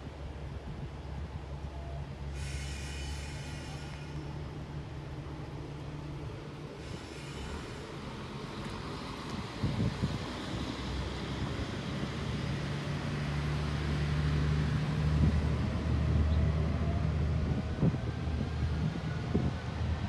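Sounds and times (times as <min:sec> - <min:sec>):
wind on microphone: 0:09.3 - 0:10.8, 0:14.7 - 0:20.0.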